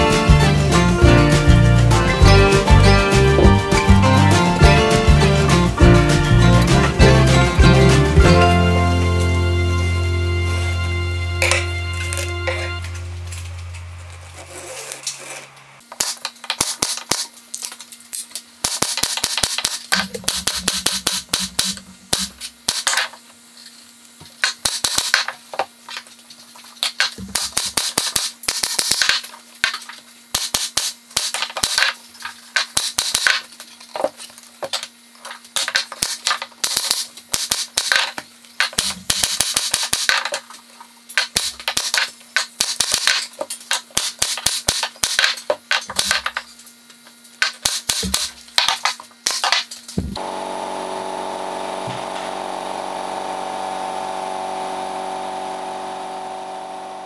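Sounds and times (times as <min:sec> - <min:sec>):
pneumatic stapler clacks: 0:18.6 - 0:23.1, 0:41.1 - 0:46.4, 0:47.4 - 0:50.0.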